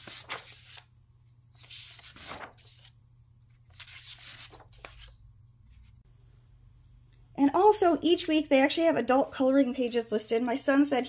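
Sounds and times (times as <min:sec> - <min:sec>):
paper pages rustling: 0:00.0 - 0:06.0.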